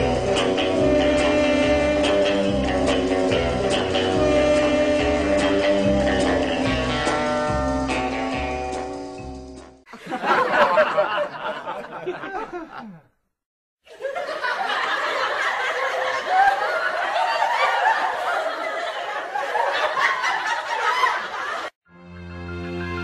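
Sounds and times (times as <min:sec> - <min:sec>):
young people laughing: 0:09.9 - 0:13.1, 0:13.9 - 0:21.7.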